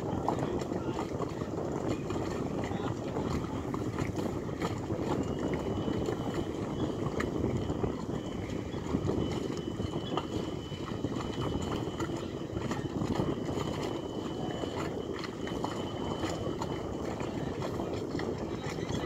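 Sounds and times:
knocks and clatter on dock: 0.0 - 19.0
steady low rumble: 0.0 - 19.0
faint high whine: 5.2 - 19.0.

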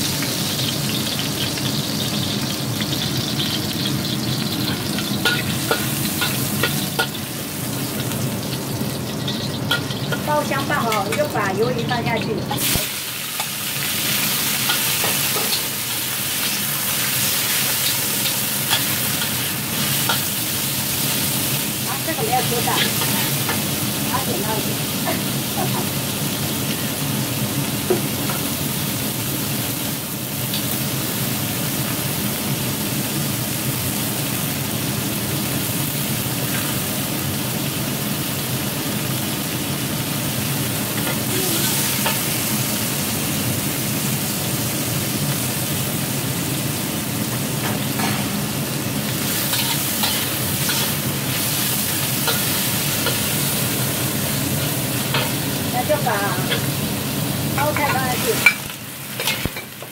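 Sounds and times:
squid sizzling in oil: 0.0 - 59.9
metal spatula scraping a wok: 22.6 - 23.6, 49.2 - 53.4.

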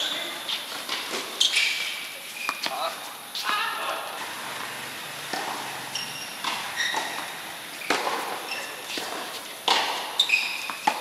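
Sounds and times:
shoes squeaking on court: 0.0 - 3.6, 4.2 - 11.0
tennis racket striking ball: 5.3 - 5.8, 6.4 - 11.0.

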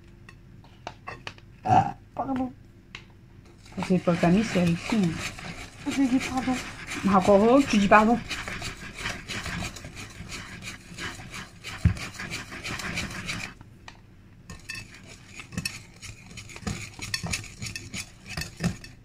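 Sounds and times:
utensil scraping cream in bowl: 3.5 - 13.6, 14.5 - 19.0
utensil clinking against bowl: 14.5 - 19.0.

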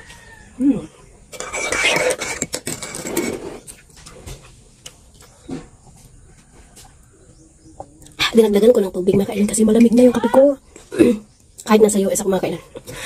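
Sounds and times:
spoon stirring coffee in a mug: 1.3 - 3.4.

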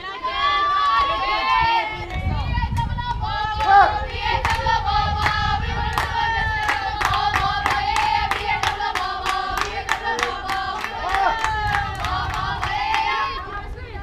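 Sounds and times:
high voices chanting: 0.0 - 14.0
rhythmic clapping: 3.5 - 13.5.

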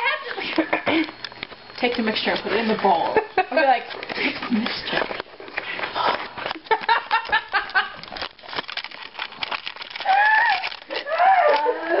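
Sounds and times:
women giggling: 0.0 - 1.2, 3.1 - 4.9, 6.4 - 8.1
high vocal squeals: 10.0 - 12.0.

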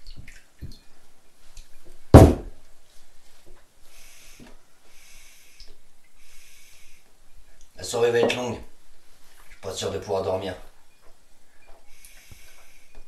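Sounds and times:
glass bottle thud on table: 2.2 - 2.5, 8.2 - 8.5
soft breathy hisses: 3.8 - 7.1, 11.9 - 13.0.

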